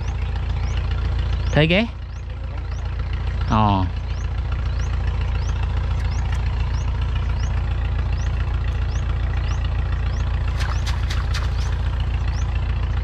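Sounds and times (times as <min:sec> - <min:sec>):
steady low engine drone: 0:00.0 - 0:13.0
water splashing and dripping: 0:10.5 - 0:12.2.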